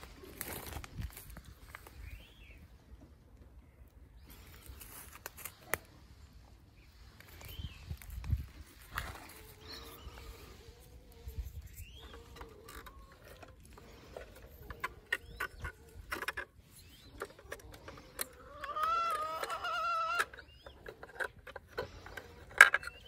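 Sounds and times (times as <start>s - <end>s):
farm animal wavering call: 9.2s - 21.2s
small clicks and knocks: 20.2s - 23.0s.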